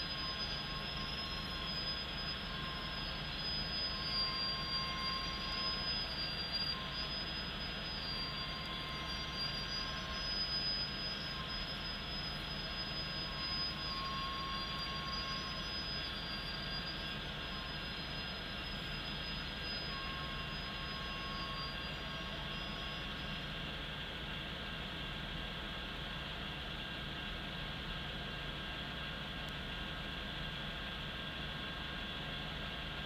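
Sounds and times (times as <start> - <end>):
high wheel squeal: 0.0 - 24.0.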